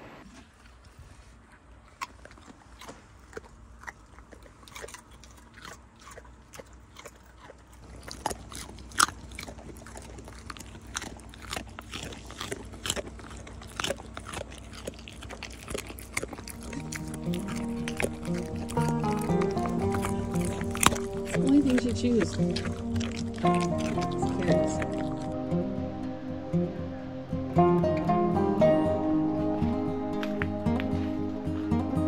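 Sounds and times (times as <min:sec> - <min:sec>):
dogs crunching treats: 0:00.2 - 0:25.9.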